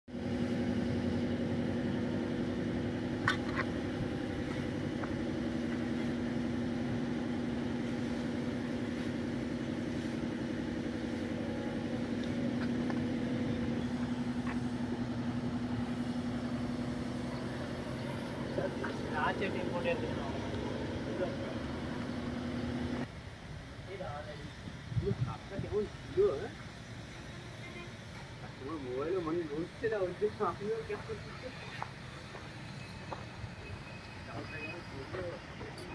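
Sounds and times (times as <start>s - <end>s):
engine idling: 0.1s - 23.1s.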